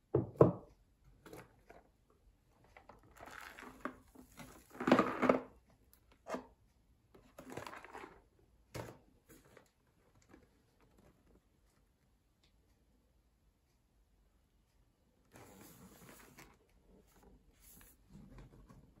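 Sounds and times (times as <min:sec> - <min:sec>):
cardboard packaging rustling: 0:07.3 - 0:08.2.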